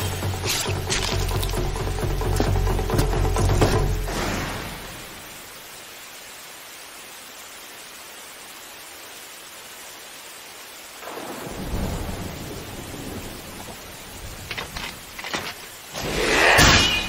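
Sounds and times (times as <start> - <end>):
rain hissing: 0.0 - 17.0
thunder rumbling: 11.0 - 16.4.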